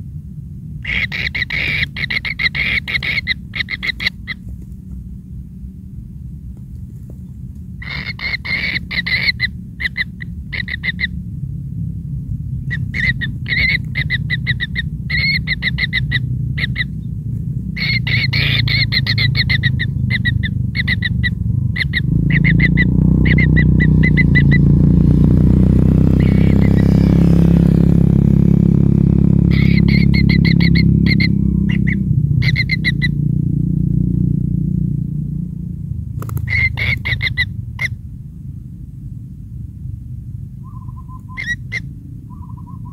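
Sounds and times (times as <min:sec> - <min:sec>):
low rumble: 0:00.0 - 0:42.9
chicks rasping begging calls: 0:00.8 - 0:04.7, 0:07.8 - 0:11.3, 0:12.5 - 0:17.1, 0:17.7 - 0:24.7, 0:26.0 - 0:28.2, 0:29.3 - 0:33.2, 0:36.2 - 0:38.0, 0:40.6 - 0:42.9.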